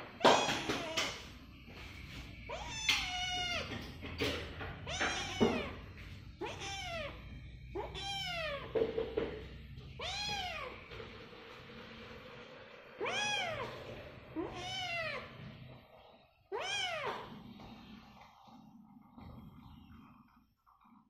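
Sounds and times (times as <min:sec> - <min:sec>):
kitten meowing: 0:02.5 - 0:03.8, 0:04.8 - 0:05.8, 0:06.4 - 0:08.8, 0:10.0 - 0:10.8, 0:13.0 - 0:13.7, 0:14.4 - 0:15.3, 0:16.5 - 0:17.3.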